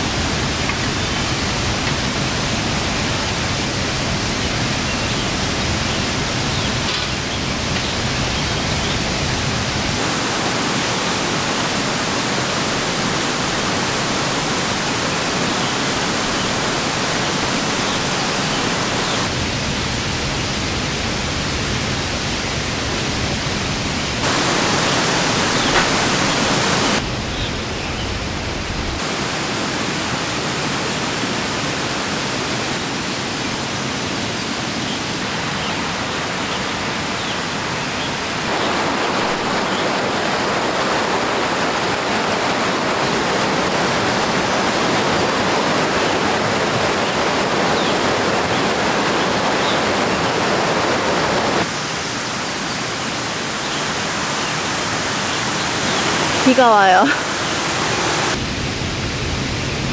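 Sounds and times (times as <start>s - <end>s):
stream water rushing: 0.0s - 59.9s.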